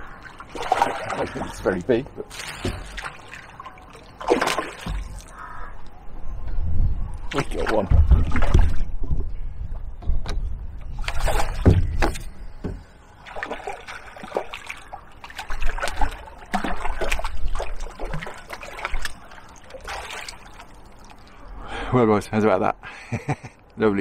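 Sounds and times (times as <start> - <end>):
net sloshing through water: 0.0 - 5.4, 11.0 - 11.8, 13.2 - 21.5
fish splashing at surface: 0.2 - 1.6, 2.2 - 5.4, 13.3 - 21.2.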